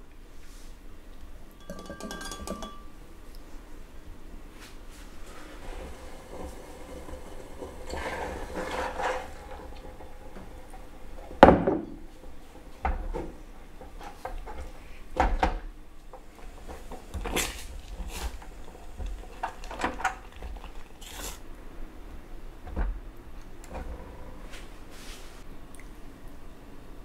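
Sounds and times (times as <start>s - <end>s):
spatula scraping metal saucepan: 5.3s - 11.4s.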